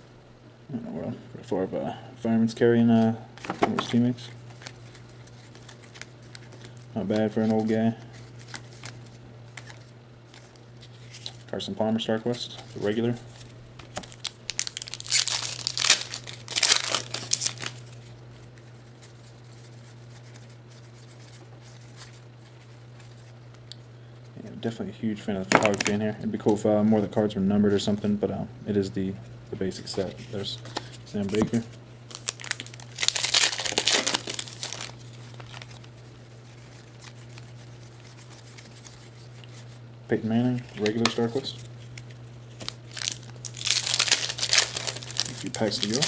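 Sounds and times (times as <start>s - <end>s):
low steady hum: 0.0s - 46.0s
foil wrapper crinkling: 3.8s - 11.5s, 12.8s - 18.2s, 25.5s - 26.6s, 29.9s - 39.8s, 40.6s - 46.0s.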